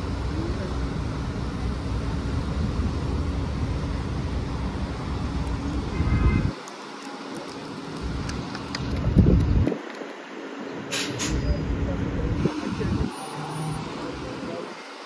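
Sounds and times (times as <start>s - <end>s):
bus and cars idling: 0.0s - 15.0s
street noise: 0.0s - 15.0s
brief high squeal: 11.0s - 11.7s.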